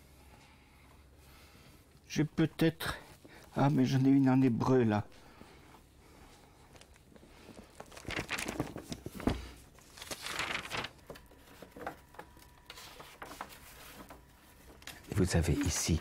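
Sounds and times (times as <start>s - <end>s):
book pages rustling: 6.7s - 16.0s.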